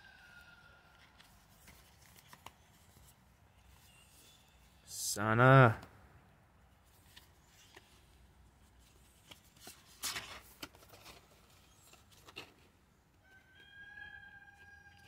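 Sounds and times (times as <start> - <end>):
card rustling and clicking: 1.0 - 3.2, 6.9 - 12.8.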